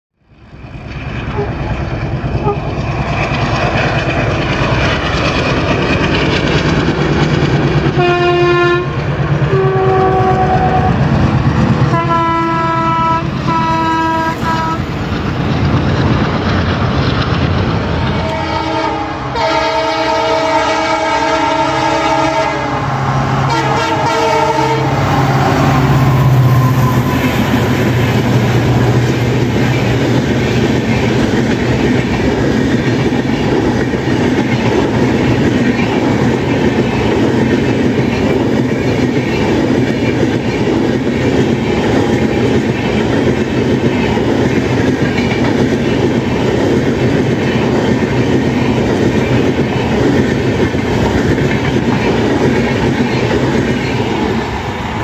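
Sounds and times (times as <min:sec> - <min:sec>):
train coaches rumbling past: 0:00.2 - 0:55.0
wheels clacking over rail joints: 0:00.7 - 0:13.5, 0:25.0 - 0:55.0
locomotive air horn: 0:01.3 - 0:01.6, 0:02.4 - 0:02.7, 0:08.0 - 0:11.0, 0:11.9 - 0:14.9, 0:18.2 - 0:25.1.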